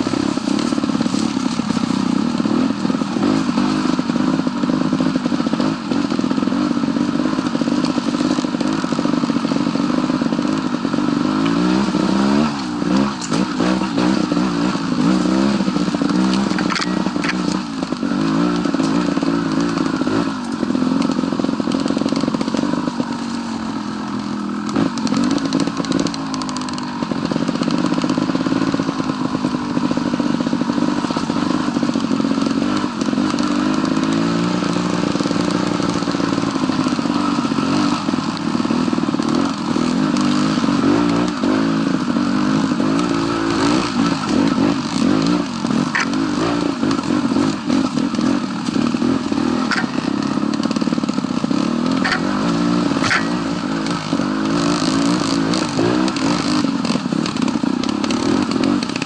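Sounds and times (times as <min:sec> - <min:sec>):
motorcycle engine revving: 0:00.0 - 0:59.0
bike clattering over stones: 0:15.0 - 0:18.1, 0:44.0 - 0:54.7.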